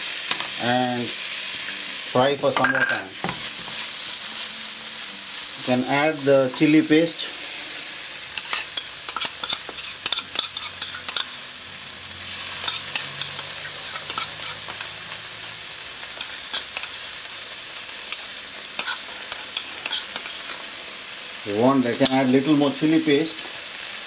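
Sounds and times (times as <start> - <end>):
masala sizzling in oil: 0.0 - 24.0.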